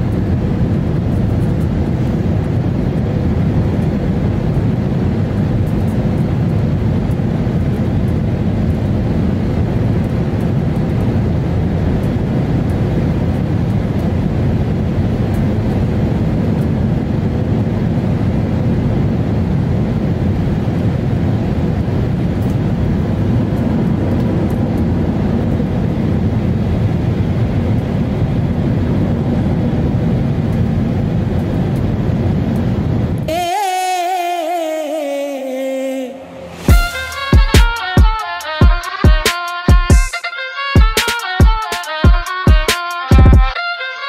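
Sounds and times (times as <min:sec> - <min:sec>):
jet engines rumbling in cabin: 0:00.0 - 0:33.4.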